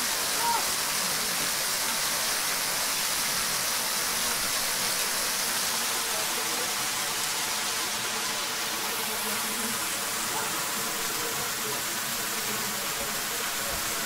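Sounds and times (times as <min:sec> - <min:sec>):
waterfall rushing: 0:00.0 - 0:14.0.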